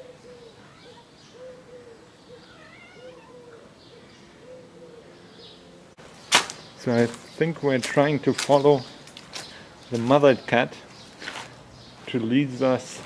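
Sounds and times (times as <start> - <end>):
soft cat calls: 0.0 - 1.6, 2.3 - 3.8.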